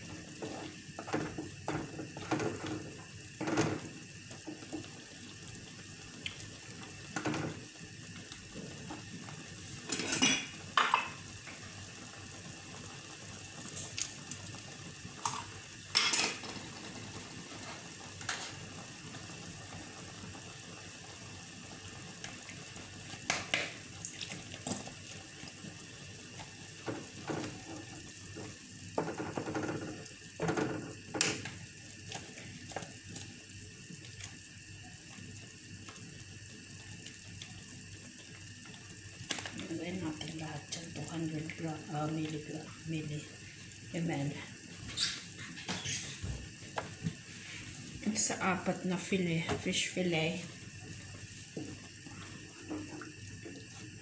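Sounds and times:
pots and pans clattering: 3.4s - 3.9s, 9.9s - 11.2s, 15.2s - 16.8s.

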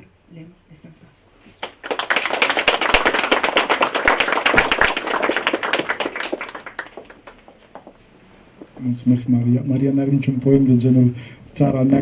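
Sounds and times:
audience applauding: 1.6s - 8.0s.

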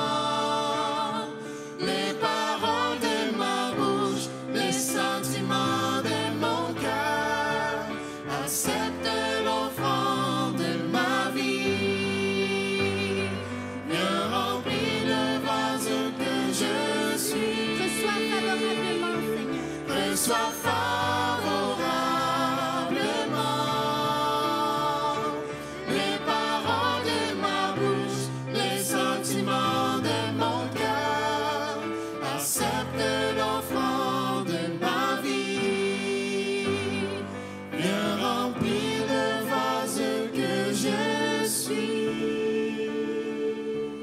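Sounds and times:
group singing worship song: 0.0s - 44.0s
keyboard playing: 13.3s - 31.5s.

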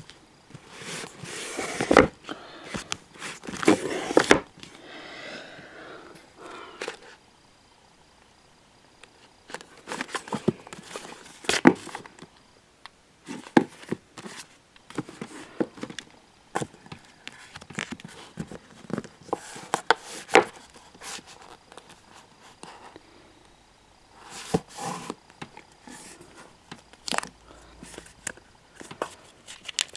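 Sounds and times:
books handled on wooden shelf: 0.5s - 4.8s, 9.5s - 12.3s, 13.3s - 23.0s, 24.2s - 29.9s.

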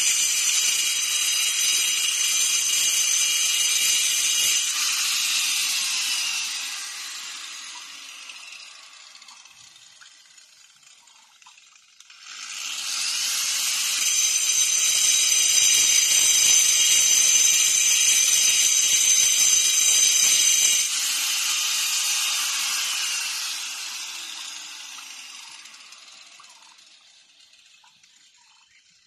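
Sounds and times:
electric grinder whining on stone: 0.0s - 28.1s.

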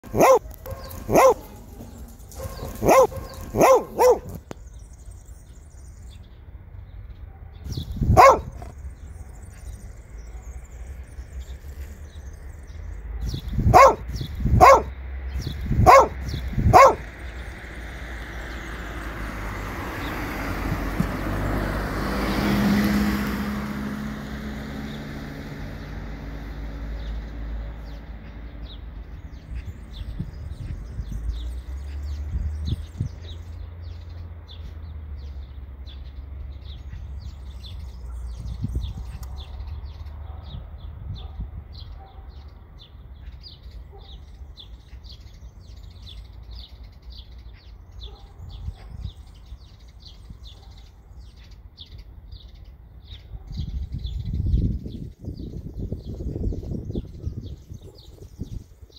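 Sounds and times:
dog barking: 0.0s - 4.4s, 7.3s - 8.7s, 13.2s - 14.9s, 15.8s - 17.1s, 40.2s - 42.5s, 43.9s - 44.2s, 48.0s - 49.0s
car passing: 0.0s - 4.5s, 13.7s - 28.2s.

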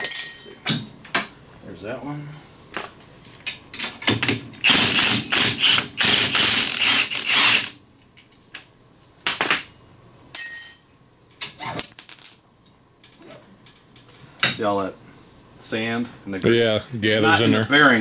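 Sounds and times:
ringing clink of bolt and tools: 0.0s - 1.7s
impact wrench hammering: 4.1s - 7.8s.

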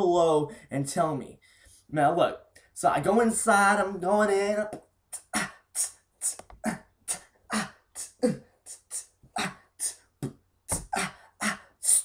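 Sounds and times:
man beatboxing: 5.1s - 12.0s.

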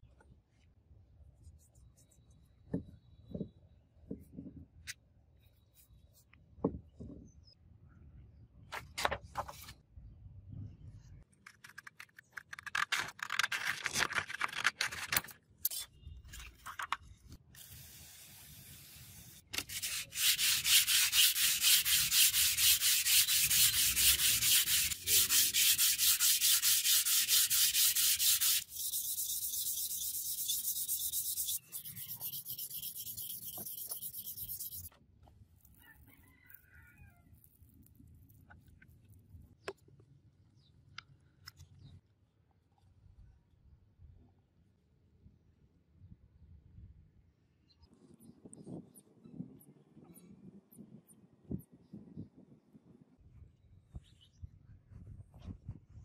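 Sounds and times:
sandpaper scraping on steel: 17.7s - 34.9s.

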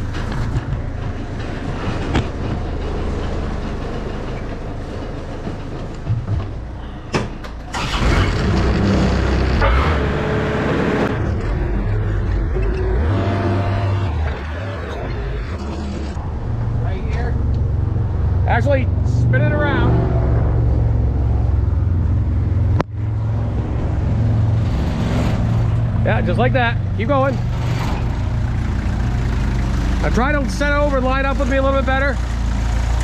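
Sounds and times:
forklift engine running: 0.0s - 19.0s, 20.1s - 33.0s.

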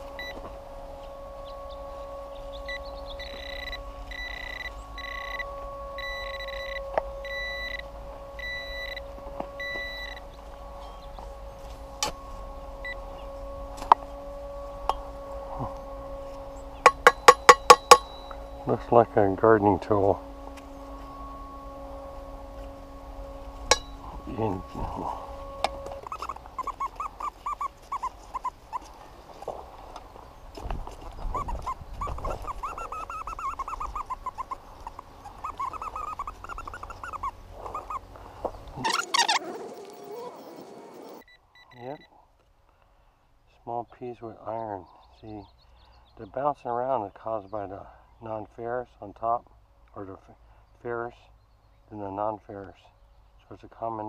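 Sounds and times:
metal detector electronic hum: 0.0s - 42.1s.

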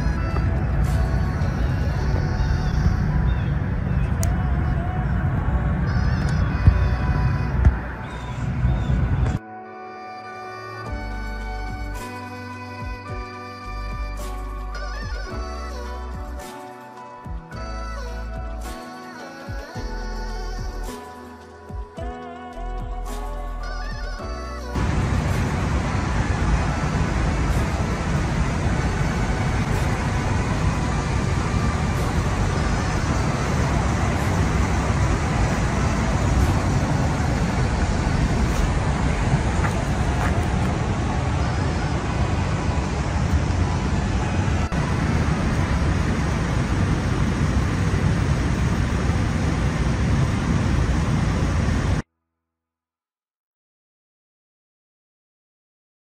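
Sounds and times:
outdoor rumble with hiss: 0.0s - 9.4s, 24.7s - 52.0s.

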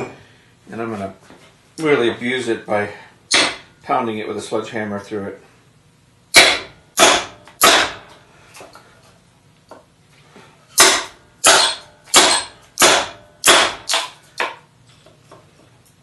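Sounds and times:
sledgehammer striking steel blade: 6.3s - 8.0s, 10.8s - 14.1s.

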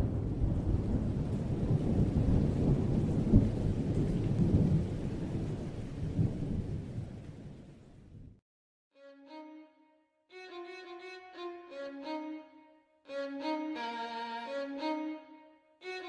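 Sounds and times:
rain hiss: 0.0s - 8.0s
thunder rumbling: 0.0s - 8.3s.

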